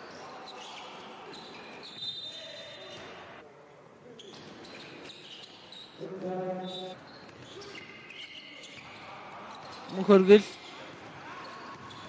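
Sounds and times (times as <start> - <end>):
sneaker squeaks: 0.0 - 3.2, 4.2 - 12.0.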